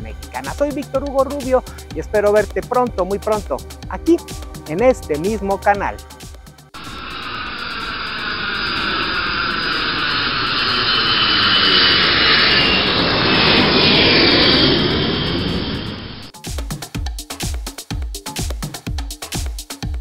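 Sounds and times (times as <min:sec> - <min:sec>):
jet airliner passing overhead: 0:06.8 - 0:16.3.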